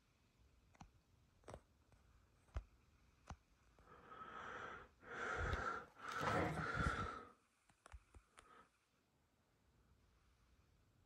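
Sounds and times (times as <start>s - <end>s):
person breathing out heavily: 3.9s - 7.3s.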